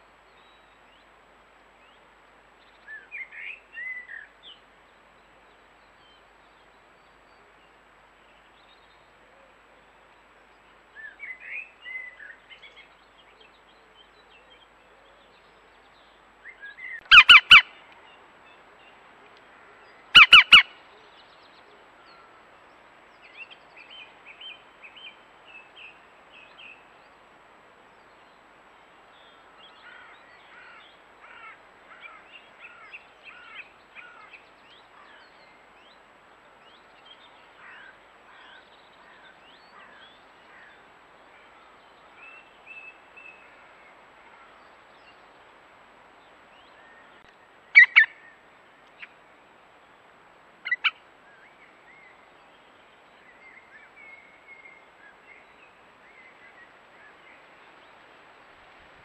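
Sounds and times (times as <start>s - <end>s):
woodpecker calls: 17.0s - 17.7s, 20.2s - 20.7s, 47.8s - 48.1s, 50.6s - 51.0s.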